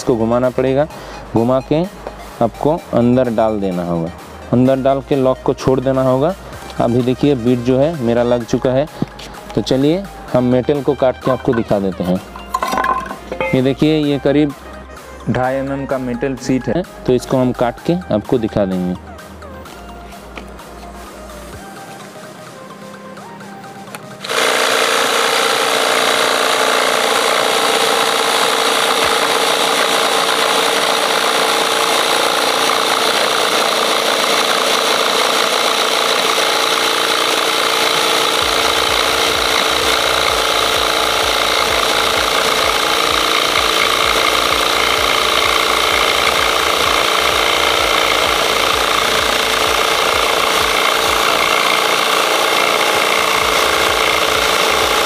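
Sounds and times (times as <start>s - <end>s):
saw cutting metal sheet: 24.2s - 55.0s.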